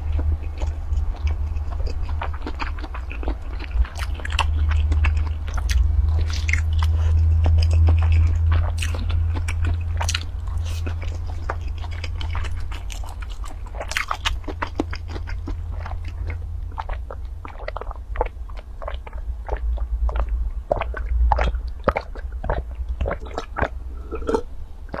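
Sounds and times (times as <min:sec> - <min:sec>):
chewing crunchy food: 0:00.0 - 0:25.0
sipping and swallowing: 0:00.0 - 0:25.0.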